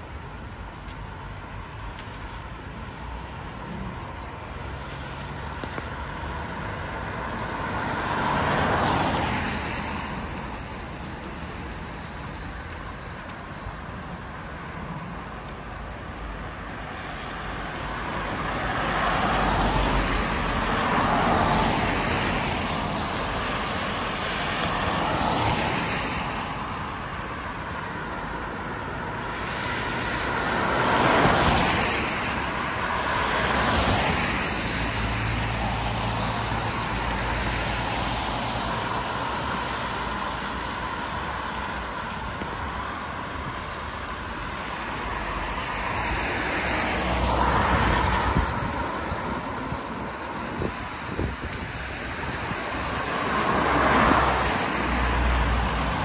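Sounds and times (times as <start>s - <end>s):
background traffic: 0.0s - 56.0s
cars passing on wet road: 0.0s - 56.0s.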